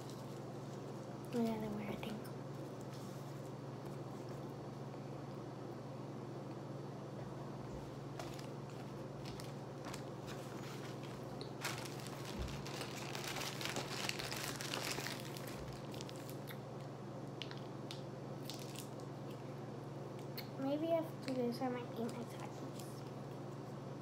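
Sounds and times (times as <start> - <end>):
plastic bag crinkling: 0.0 - 1.8, 8.1 - 16.5, 18.4 - 19.0
steady low hum: 0.0 - 24.0.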